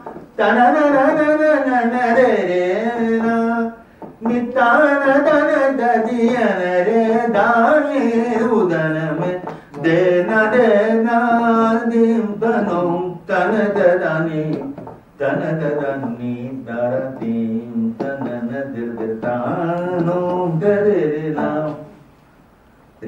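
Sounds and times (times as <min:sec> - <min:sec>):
man singing unaccompanied: 0:00.0 - 0:22.0.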